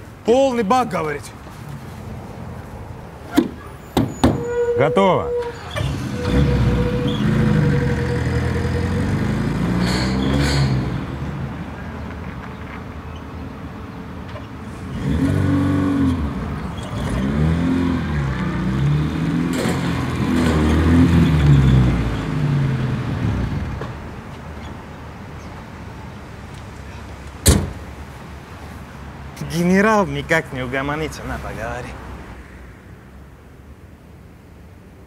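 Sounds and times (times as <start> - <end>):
car engine revving: 5.8 - 11.3, 14.8 - 23.9
sharp knock: 27.4 - 27.8.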